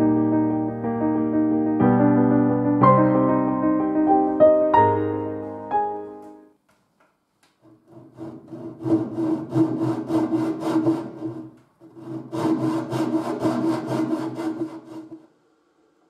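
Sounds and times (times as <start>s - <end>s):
hand saw cutting wood: 7.6s - 15.2s.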